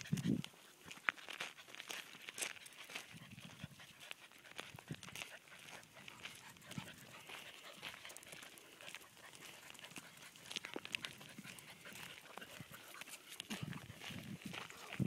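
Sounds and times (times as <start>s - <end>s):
paws crunching on gravel: 0.0s - 15.0s.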